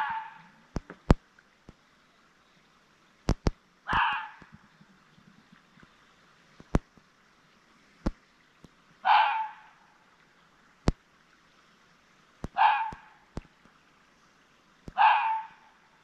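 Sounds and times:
sharp clicks: 3.3 - 4.1
animal screeching call: 3.9 - 4.4, 15.0 - 15.6.

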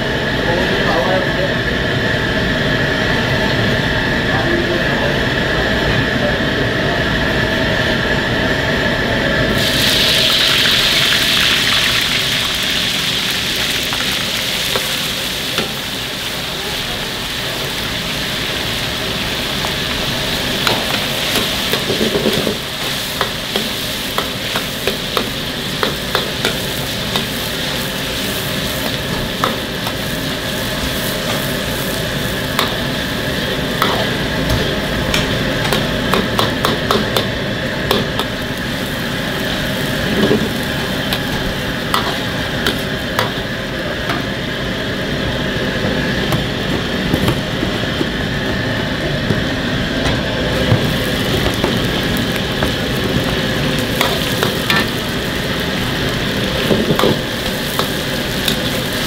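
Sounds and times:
meat sizzling in deep oil: 9.5 - 49.8, 50.4 - 59.0.

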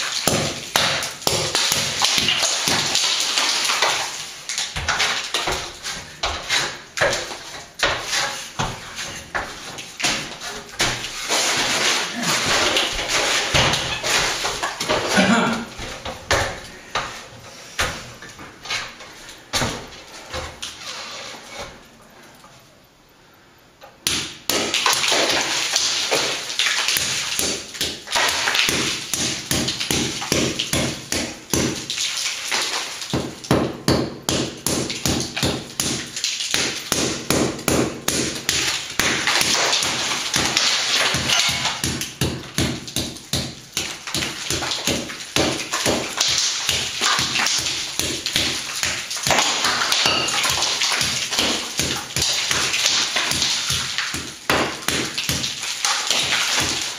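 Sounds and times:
hammer tapping on concrete ceiling: 33.1 - 56.9.

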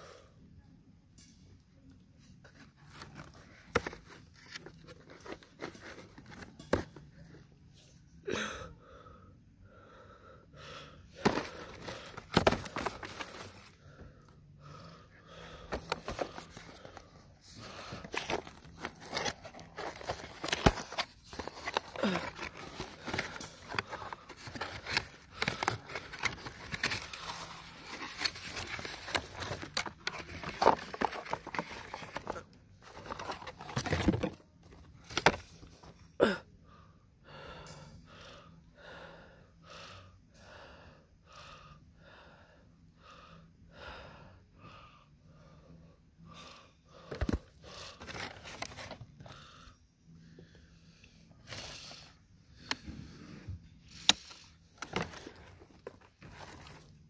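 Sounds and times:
cardboard box rustling and scraping: 2.4 - 7.1, 11.2 - 13.8, 15.7 - 36.0, 47.1 - 49.1, 54.7 - 57.0.

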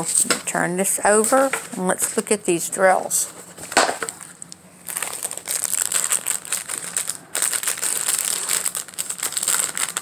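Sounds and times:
plastic crinkling and rustling: 1.0 - 1.8, 3.2 - 10.0.

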